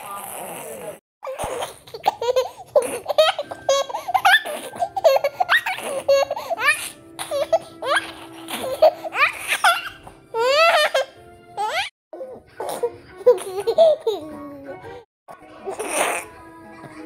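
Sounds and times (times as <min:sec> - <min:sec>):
toddler laughing: 0:01.2 - 0:14.5.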